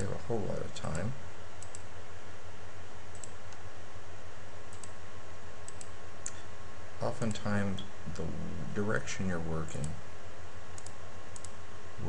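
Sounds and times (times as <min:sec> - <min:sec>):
steady low hum: 0:00.0 - 0:12.0
computer clicks: 0:01.6 - 0:01.9, 0:03.1 - 0:03.6, 0:04.7 - 0:05.0, 0:05.6 - 0:06.4, 0:10.8 - 0:11.6.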